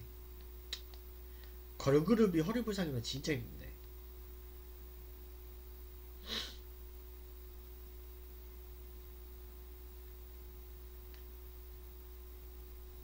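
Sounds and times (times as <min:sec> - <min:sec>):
faint steady tone: 0:00.0 - 0:13.0
steady low hum: 0:00.0 - 0:13.0
man breathing: 0:06.2 - 0:06.6.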